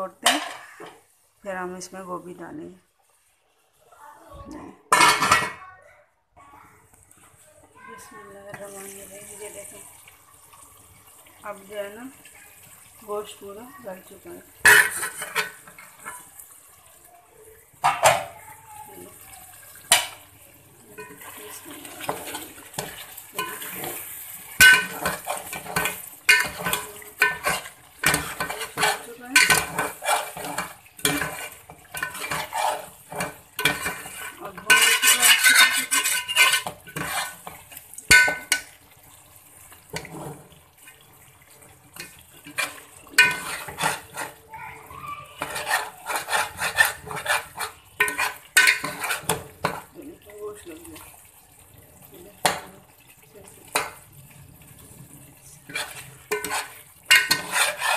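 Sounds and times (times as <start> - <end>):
metal spoon scraping a steel pot: 14.6 - 16.3, 21.0 - 38.7, 42.0 - 44.4, 45.4 - 49.9, 55.6 - 57.9.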